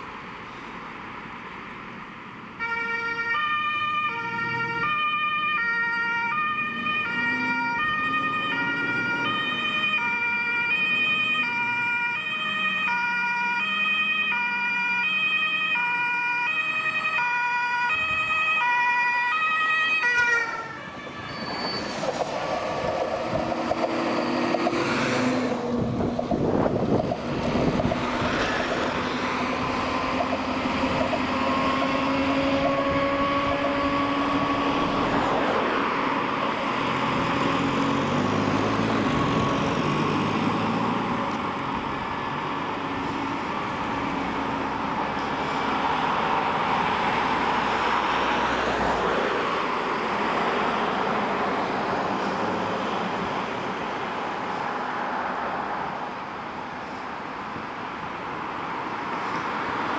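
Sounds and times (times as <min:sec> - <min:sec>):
emergency vehicles driving past: 0:00.0 - 0:59.9
two-tone siren: 0:02.6 - 0:22.2, 0:29.4 - 0:35.4, 0:38.7 - 0:39.8.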